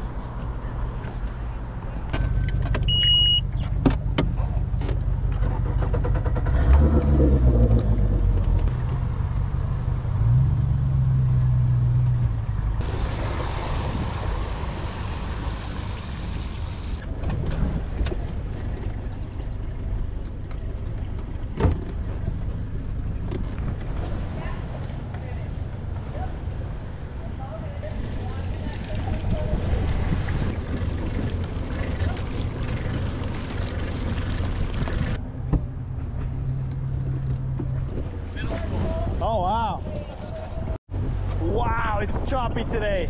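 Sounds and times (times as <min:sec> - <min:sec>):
short electronic beep: 0:02.3 - 0:03.6
outboard motor idling and revving: 0:29.0 - 0:35.2.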